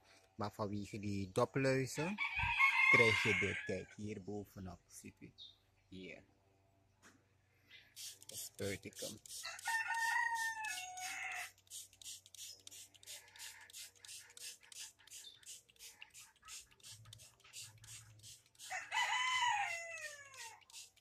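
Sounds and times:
rooster crowing: 2.1 - 3.9, 9.4 - 11.6, 18.6 - 20.7.

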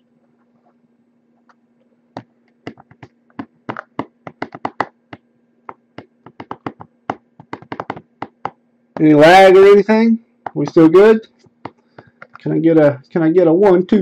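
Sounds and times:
fingers tapping on cardboard box: 2.2 - 9.1, 11.4 - 12.4.

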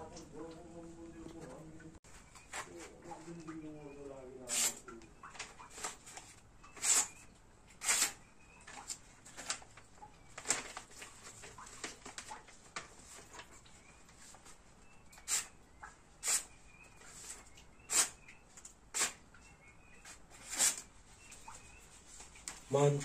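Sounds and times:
knife slicing paper: 4.5 - 4.8, 6.8 - 7.2, 7.8 - 8.2, 17.2 - 18.2, 19.0 - 19.2, 20.4 - 20.9.

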